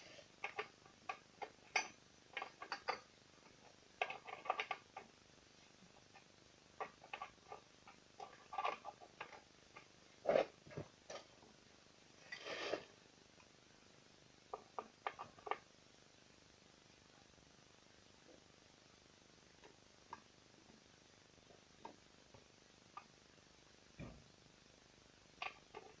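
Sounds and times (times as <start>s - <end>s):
small clicks and knocks: 0.4s - 5.1s, 25.4s - 26.0s
brief scrape: 12.3s - 12.9s.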